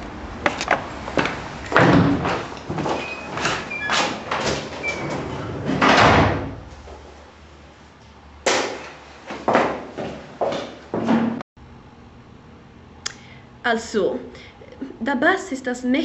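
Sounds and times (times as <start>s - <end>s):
footsteps: 0.4s - 4.8s, 8.7s - 11.2s
short squeaks: 2.9s - 5.5s.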